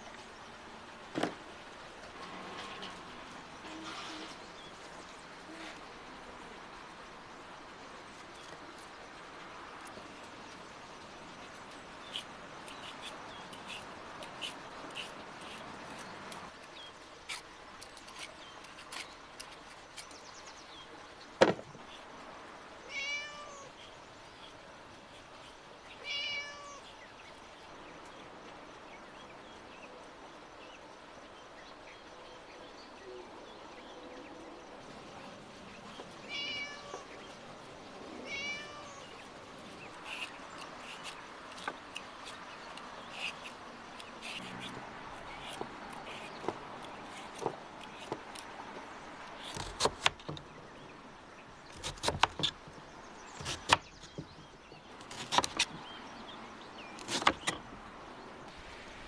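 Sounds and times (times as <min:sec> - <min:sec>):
cat meowing: 0:22.9 - 0:23.7, 0:26.0 - 0:26.8, 0:36.3 - 0:37.1, 0:38.2 - 0:39.1
vegetable peeler scraping pumpkin: 0:39.7 - 0:48.4, 0:57.0 - 0:57.5.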